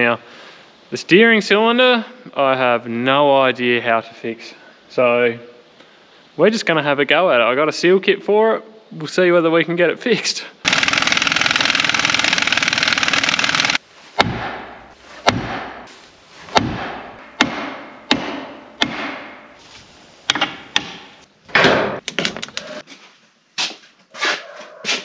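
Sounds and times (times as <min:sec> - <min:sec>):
impact wrench rattling: 0:10.7 - 0:13.8.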